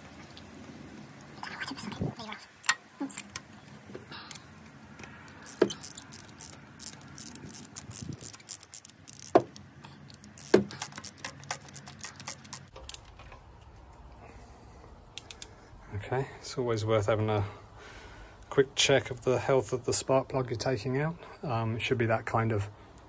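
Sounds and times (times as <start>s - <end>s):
socket wrench clicking and rattling: 5.0s - 13.8s.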